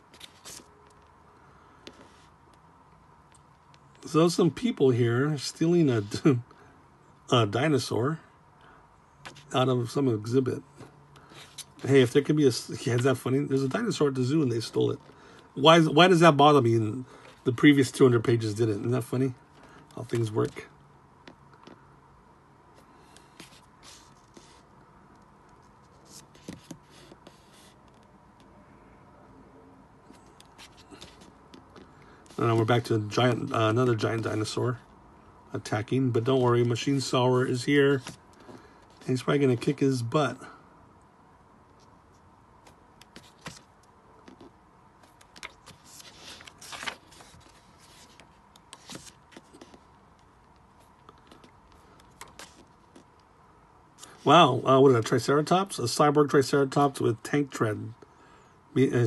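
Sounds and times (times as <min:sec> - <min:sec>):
paper pages rustling: 0:00.0 - 0:01.1, 0:25.6 - 0:28.1, 0:30.1 - 0:34.6, 0:37.8 - 0:39.7, 0:42.6 - 0:53.1
page turning sweep: 0:00.1 - 0:00.7, 0:42.6 - 0:43.7, 0:44.3 - 0:49.8, 0:51.2 - 0:53.1.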